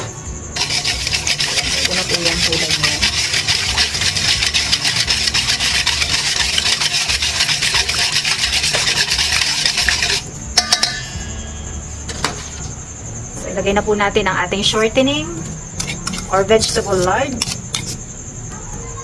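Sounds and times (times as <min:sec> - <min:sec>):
utensil scraping steel bowl: 0:00.6 - 0:10.3, 0:15.8 - 0:18.0.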